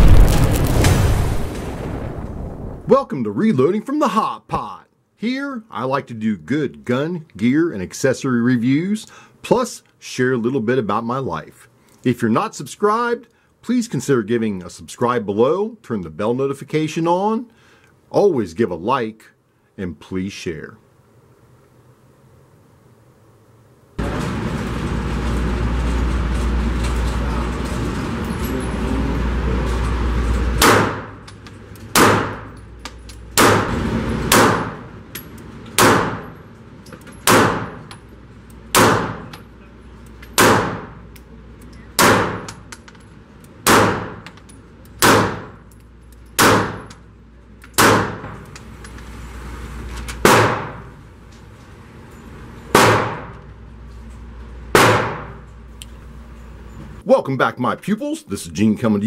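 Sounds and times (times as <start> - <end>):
loud rushing noise: 0.0 - 2.9
pistol shots echoing indoors: 30.6 - 31.2, 31.9 - 32.6, 33.3 - 34.9, 35.8 - 36.3, 37.2 - 37.8, 38.7 - 39.3, 40.4 - 41.0, 42.0 - 42.5, 43.6 - 44.3, 45.0 - 45.5, 46.4 - 47.0, 47.8 - 48.4, 50.3 - 50.9, 52.7 - 53.4, 54.8 - 55.4.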